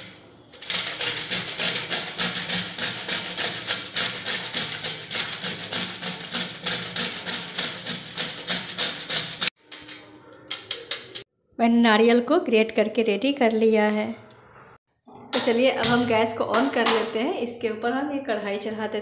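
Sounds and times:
coconut rasping on grater: 0:00.6 - 0:09.6.

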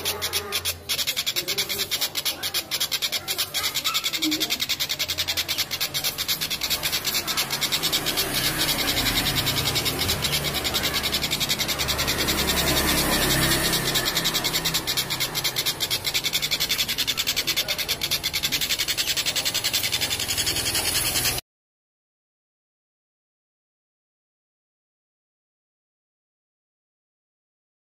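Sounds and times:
kingfisher cackling call: 0:00.0 - 0:21.4.

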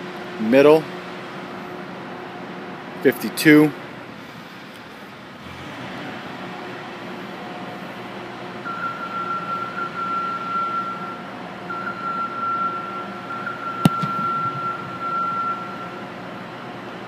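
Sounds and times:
foot kicking football: 0:13.8 - 0:15.5.

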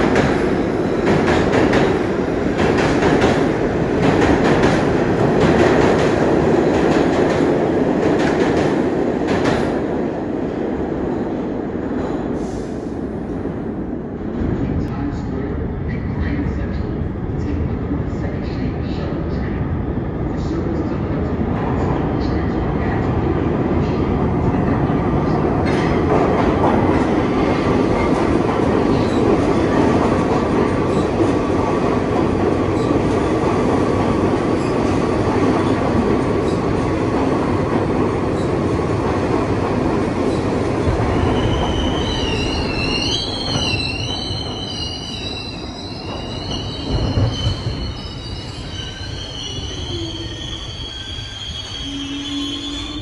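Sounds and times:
train wheels rumbling on rail: 0:00.0 - 0:53.0
train wheel squeal: 0:41.2 - 0:53.0.

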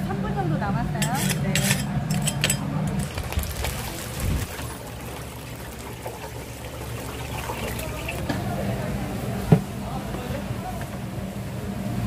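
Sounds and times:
chicken sizzling in hot oil: 0:03.0 - 0:08.3.

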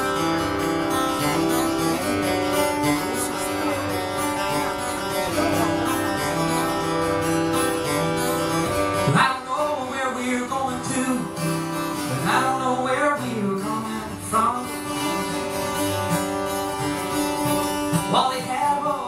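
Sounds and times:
acoustic and electric guitars: 0:00.0 - 0:19.0
loud voice: 0:01.8 - 0:06.4.

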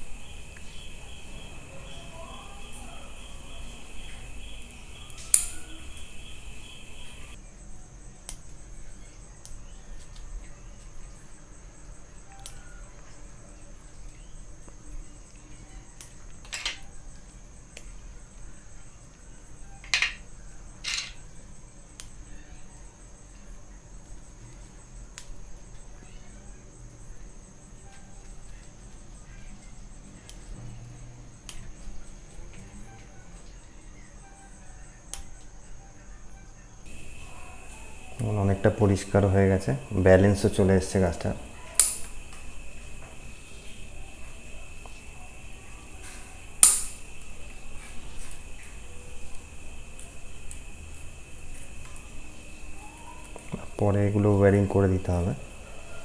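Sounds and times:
steady high-pitched tone: 0:36.9 - 0:55.6
pruning shears snipping twigs: 0:41.7 - 0:42.1, 0:46.6 - 0:47.0.

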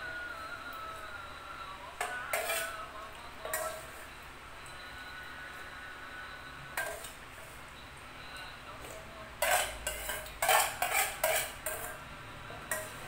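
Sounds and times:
spoon clinking on a saucepan: 0:02.0 - 0:02.8, 0:03.4 - 0:04.0, 0:06.8 - 0:07.2, 0:09.4 - 0:12.0, 0:12.7 - 0:13.0.

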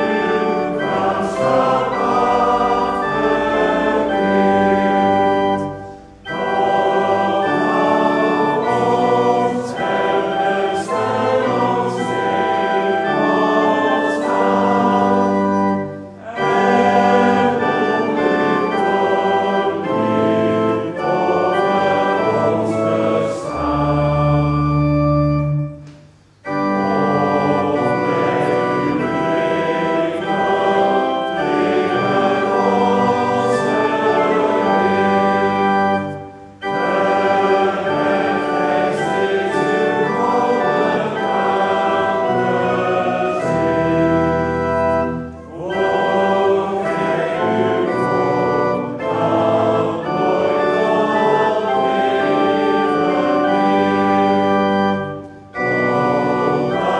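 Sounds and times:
church organ: 0:00.0 - 0:56.9
congregation singing a hymn: 0:00.0 - 0:56.9.

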